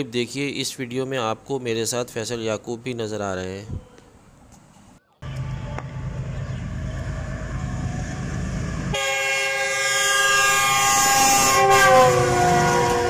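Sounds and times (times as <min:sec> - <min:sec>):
locomotive low rumble: 0:05.2 - 0:11.0
train horn chord: 0:05.2 - 0:13.0.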